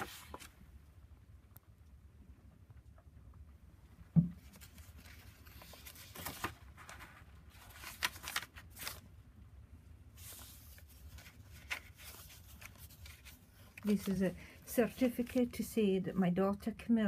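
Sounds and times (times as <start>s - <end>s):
paper pages rustling: 0.0s - 0.6s, 4.4s - 9.1s, 10.2s - 15.5s
dull thump: 4.1s - 4.4s.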